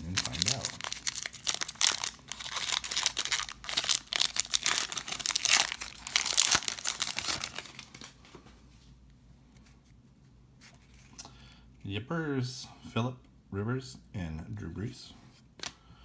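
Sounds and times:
foil wrapper crinkling and tearing: 0.0 - 8.1.

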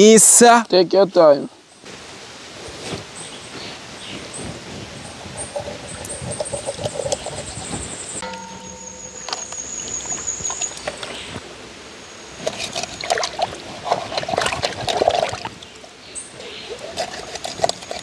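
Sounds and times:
water splashing in a metal pot: 12.4 - 15.9.

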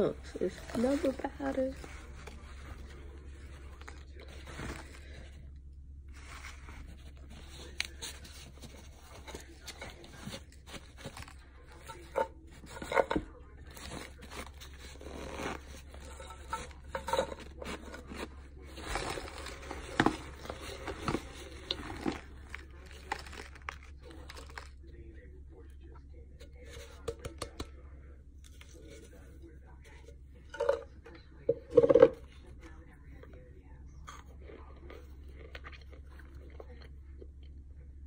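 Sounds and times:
faint low hum: 0.0 - 38.0
powdered starch crunching: 17.5 - 25.0.

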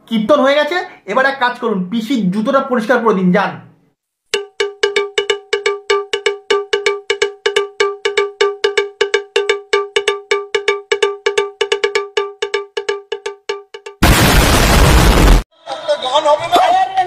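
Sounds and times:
metal bell struck rapidly: 4.4 - 14.0.

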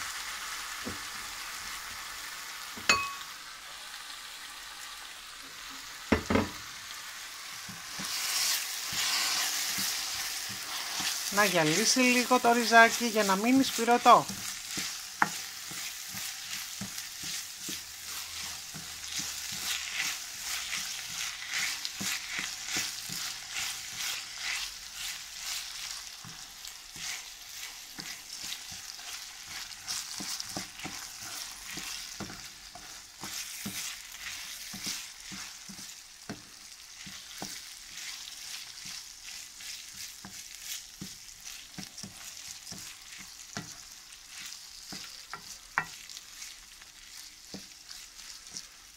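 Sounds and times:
rice and onion sizzling in oil: 0.0 - 48.9
wooden spoon scraping a pan: 7.6 - 48.9.

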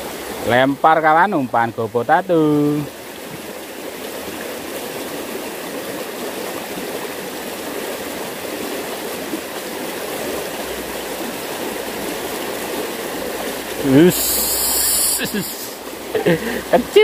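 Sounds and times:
water rushing through ditch: 0.0 - 17.0.

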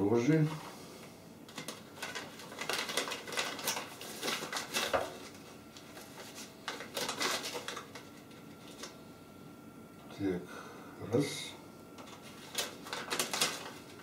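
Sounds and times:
packet rustling and crinkling: 1.5 - 9.0, 12.0 - 14.0.

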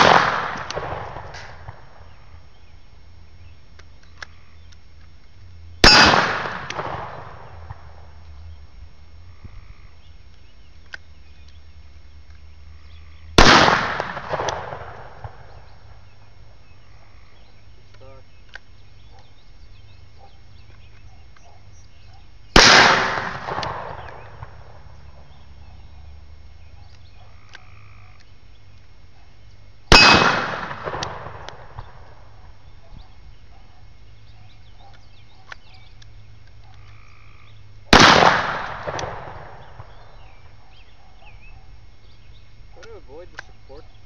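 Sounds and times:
gunshots with echo: 0.0 - 1.9, 5.8 - 7.8, 13.4 - 15.6, 22.6 - 24.8, 29.9 - 31.8, 37.9 - 40.0.

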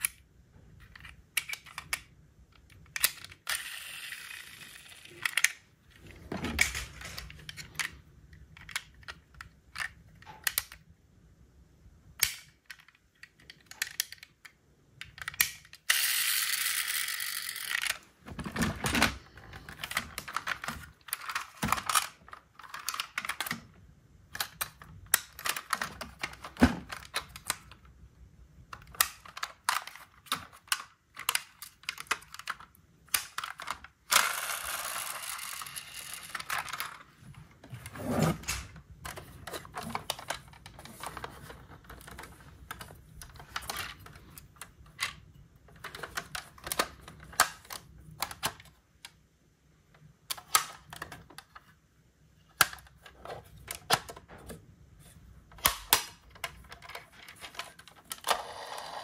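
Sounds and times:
clicks of toy car parts: 0.8 - 5.6, 6.6 - 10.9, 12.1 - 18.0, 24.3 - 27.8, 28.7 - 37.0, 38.4 - 49.2, 49.9 - 51.7, 55.5 - 59.0.

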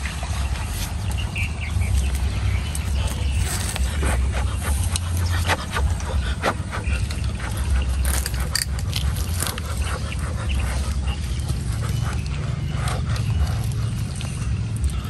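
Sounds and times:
scattered clicks and scrapes: 0.0 - 15.0
steady low rumble: 0.0 - 15.0.

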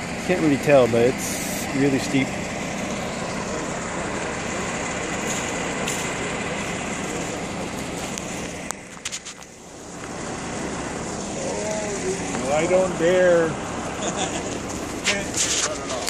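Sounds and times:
heavy diesel engine rumble: 0.0 - 16.0
outdoor noise: 0.0 - 16.0.

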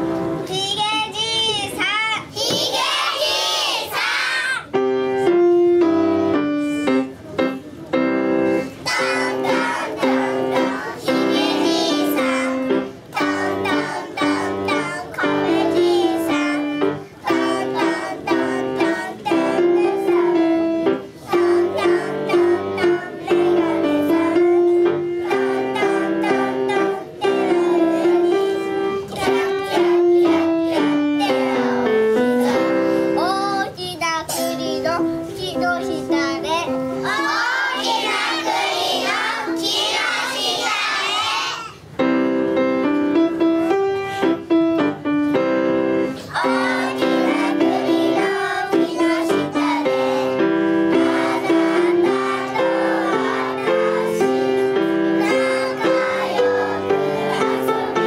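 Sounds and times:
children singing: 2.4 - 4.7, 8.6 - 33.3, 35.5 - 41.8, 46.1 - 58.0
instrumental accompaniment: 3.9 - 33.7, 34.3 - 58.0.

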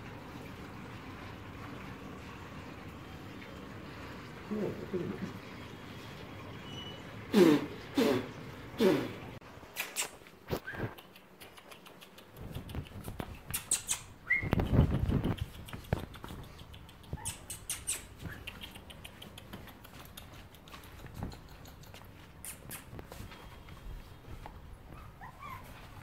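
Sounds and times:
puppy paws ticking and scuffling: 9.8 - 26.0
puppy squeak: 13.5 - 14.7, 17.1 - 18.5, 25.0 - 25.8.

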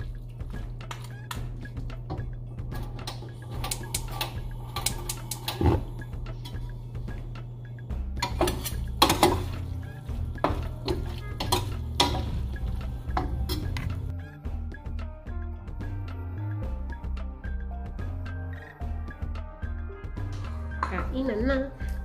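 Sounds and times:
utensils clinking and scraping pan: 8.2 - 9.8, 10.4 - 14.1.

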